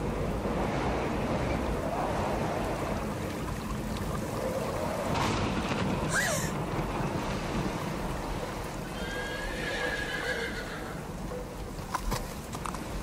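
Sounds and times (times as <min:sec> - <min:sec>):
steady rushing noise: 0:00.0 - 0:09.6
horse whinnying: 0:09.0 - 0:11.0.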